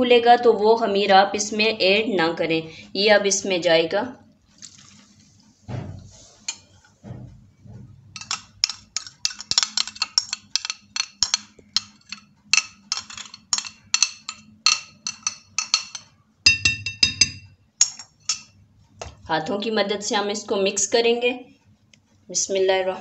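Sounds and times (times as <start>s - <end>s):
metal spoon clinking on glass bowl: 8.2s - 18.6s.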